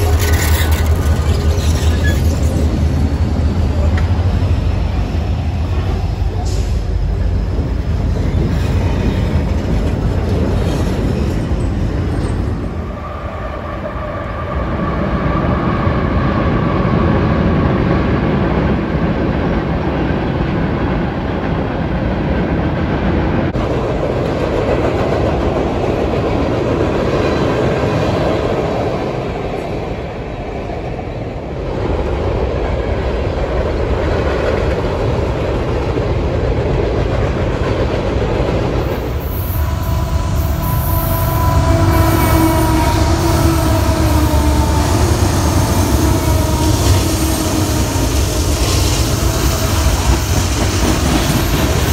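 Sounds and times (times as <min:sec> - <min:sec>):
steel wheels clattering on rails: 0:00.0 - 0:04.4, 0:45.2 - 0:51.9
freight train rumbling over bridge: 0:00.0 - 0:51.9.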